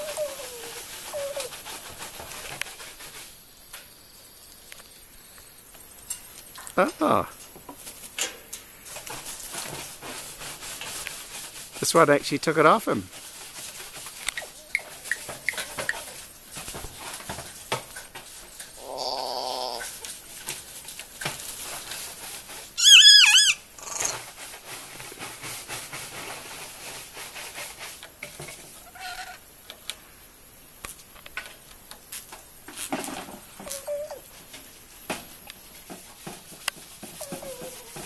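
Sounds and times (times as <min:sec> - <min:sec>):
light clicks and scratches: 0:00.0 - 0:03.4, 0:30.8 - 0:38.0
parrot high repeated call: 0:22.8 - 0:24.1
parrot harsh grating call: 0:22.8 - 0:24.2.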